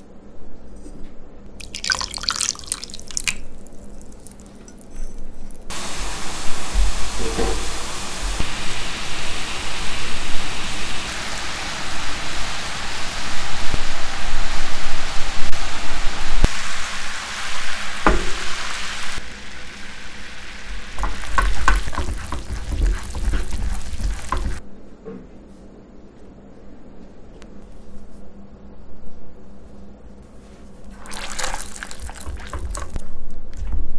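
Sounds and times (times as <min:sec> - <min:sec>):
sugar syrup boiling: 0:01.6 - 0:05.0, 0:05.7 - 0:24.6, 0:30.9 - 0:33.1.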